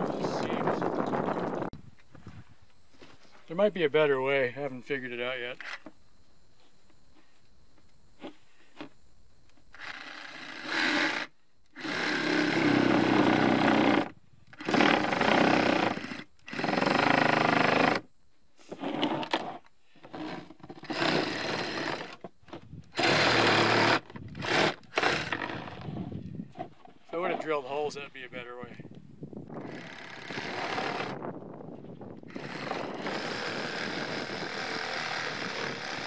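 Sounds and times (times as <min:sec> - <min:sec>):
reciprocating saw cutting plastic: 0:18.7 - 0:22.2, 0:22.9 - 0:26.0, 0:32.3 - 0:36.0.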